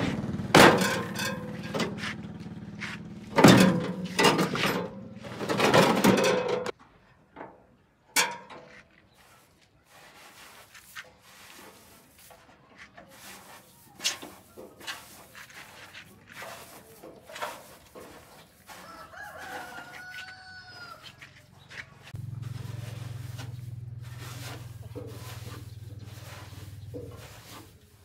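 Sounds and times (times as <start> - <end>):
metal clanks and knocks: 0.0 - 8.8.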